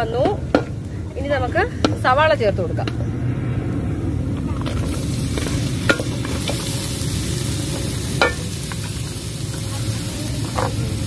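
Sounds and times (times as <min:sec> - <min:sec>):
onions sizzling in oil: 0:04.2 - 0:11.0
utensil clinking against pan: 0:08.2 - 0:08.8.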